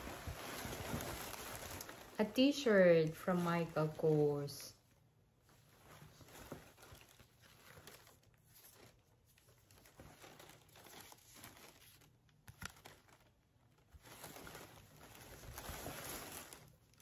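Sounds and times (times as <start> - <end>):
shirt and tag rustling: 0.0 - 4.6.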